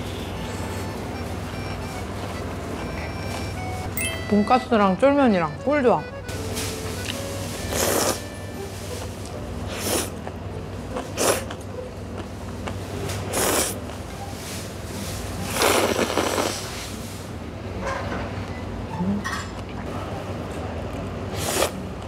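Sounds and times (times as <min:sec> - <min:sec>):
person slurping noodles: 0:07.7 - 0:08.2, 0:11.2 - 0:11.6, 0:13.3 - 0:13.8, 0:15.5 - 0:16.7, 0:21.3 - 0:21.8.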